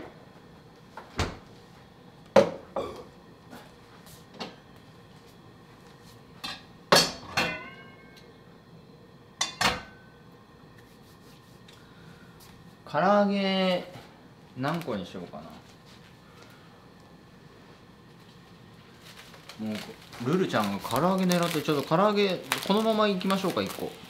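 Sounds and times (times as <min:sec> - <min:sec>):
dishes and utensils clinking: 0:06.4 - 0:08.2.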